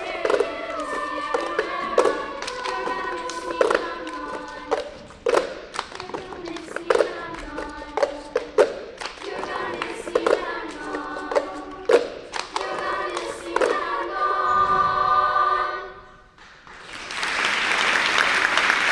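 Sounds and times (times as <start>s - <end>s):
plastic cups tapping on floor: 0.0s - 12.7s
girls' choir singing: 0.0s - 16.4s
applause: 16.4s - 18.9s.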